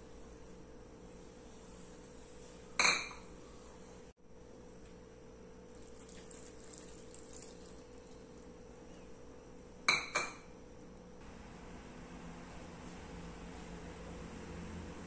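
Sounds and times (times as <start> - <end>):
water pouring into metal pot: 5.8 - 8.2.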